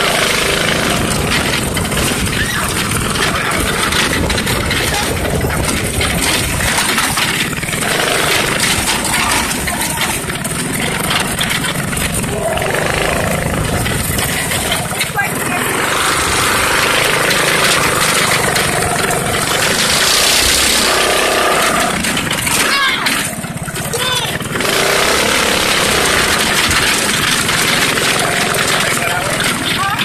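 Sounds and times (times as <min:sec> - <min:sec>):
go-kart engine droning: 0:00.0 - 0:30.0.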